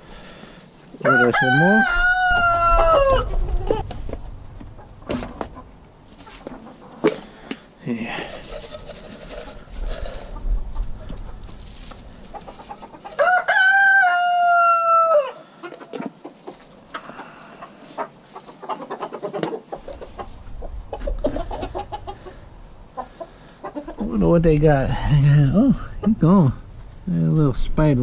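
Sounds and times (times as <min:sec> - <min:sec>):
rooster crowing: 0:01.0 - 0:03.8, 0:13.1 - 0:15.4.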